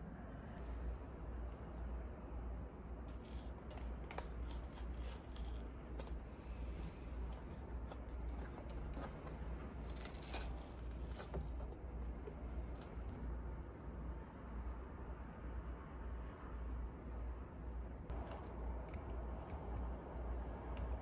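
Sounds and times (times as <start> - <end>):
low steady hum: 0.0 - 21.0
cardboard carton crinkling: 7.2 - 13.1.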